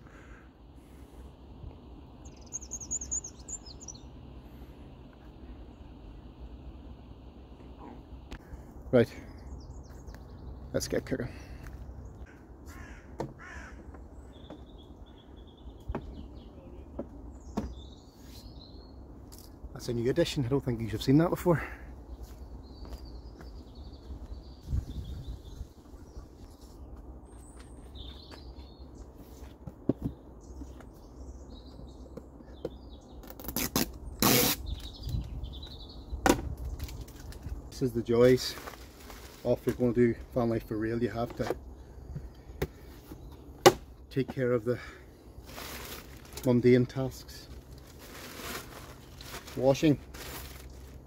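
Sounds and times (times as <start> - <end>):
small birds chirping: 0.0 - 51.0
bird chirping faintly: 2.2 - 4.2
low wind rumble: 21.8 - 29.2, 33.9 - 38.0.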